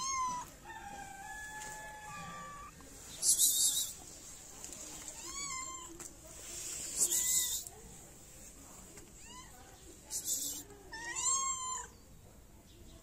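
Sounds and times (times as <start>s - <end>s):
cat meowing: 0.0s - 0.5s, 5.2s - 6.0s, 9.2s - 9.6s, 10.4s - 11.9s.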